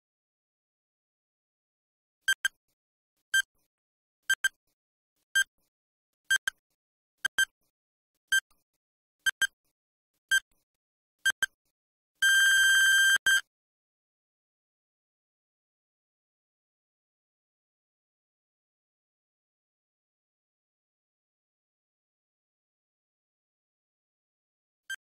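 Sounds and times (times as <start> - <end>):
electronic timer beeps: 2.3 - 2.6, 3.3 - 3.5, 4.3 - 4.6, 6.3 - 6.6, 7.2 - 7.5, 8.3 - 8.6, 9.2 - 9.6, 11.2 - 11.6, 12.2 - 13.5
long timer beep: 12.2 - 13.5.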